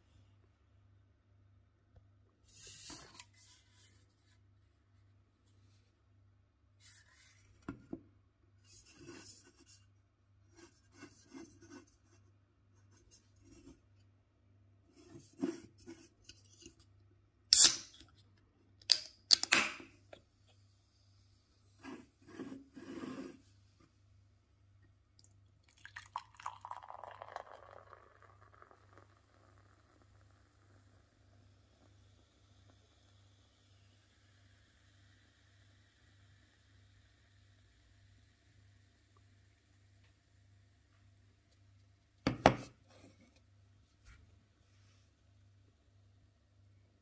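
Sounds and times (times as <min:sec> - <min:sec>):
can pull tab snapping open: 0:17.5 - 0:18.0, 0:18.8 - 0:19.8
can rubbing and scraping on table: 0:21.8 - 0:23.5.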